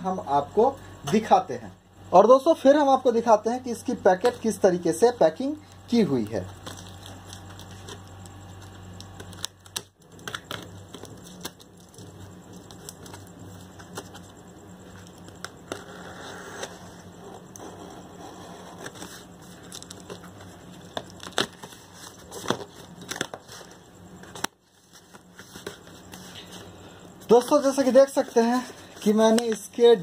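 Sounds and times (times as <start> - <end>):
cardboard and packing tape crinkling: 5.6 - 14.3, 18.8 - 26.6.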